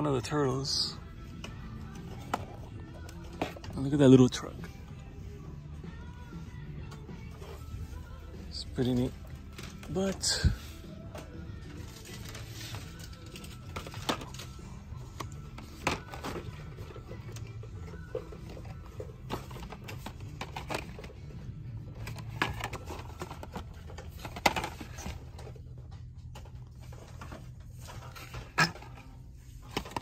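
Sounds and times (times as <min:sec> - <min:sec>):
faint background music: 0:00.0 - 0:30.0.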